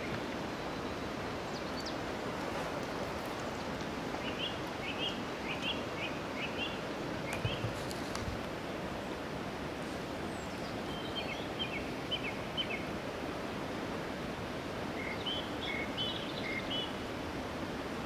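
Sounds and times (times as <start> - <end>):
small birds chirping: 0.0 - 2.1, 10.2 - 12.9.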